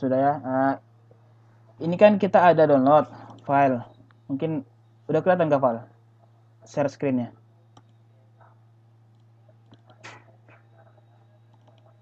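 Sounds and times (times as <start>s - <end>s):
computer mouse clicks: 7.7s - 8.0s, 9.1s - 10.7s, 11.5s - 11.9s.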